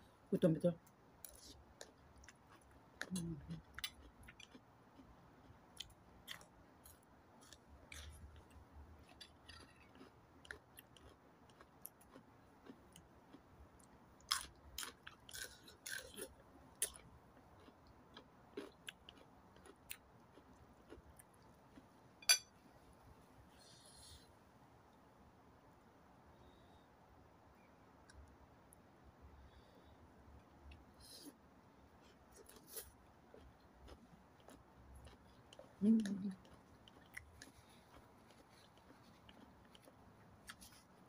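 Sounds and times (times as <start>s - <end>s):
chewing and mouth clicks: 1.2s - 21.9s, 32.0s - 41.0s.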